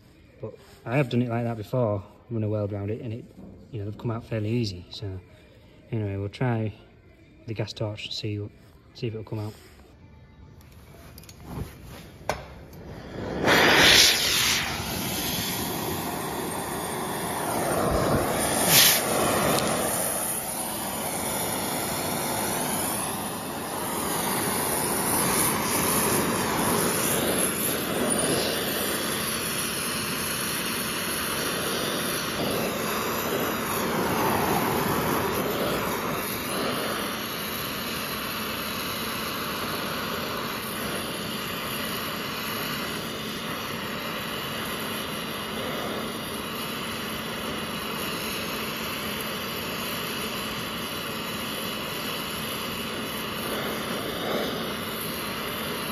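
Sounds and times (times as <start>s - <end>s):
gas torch flame hissing: 10.8s - 55.9s.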